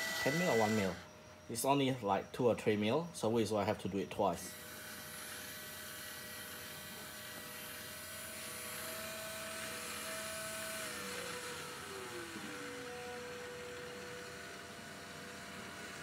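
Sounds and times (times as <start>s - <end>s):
motor-driven syringe whine: 0.0s - 16.0s.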